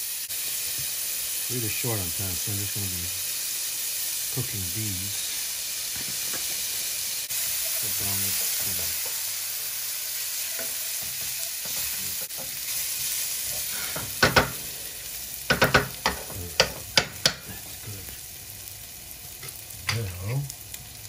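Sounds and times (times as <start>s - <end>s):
garlic sizzling in hot oil: 0.0s - 21.0s
spoon knocking against pan: 14.0s - 14.6s, 15.5s - 17.5s.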